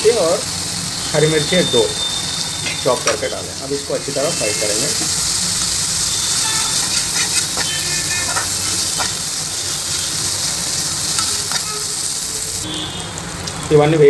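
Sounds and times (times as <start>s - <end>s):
vegetables sizzling in hot oil: 0.0s - 14.0s
ladle scraping pan: 6.2s - 9.3s.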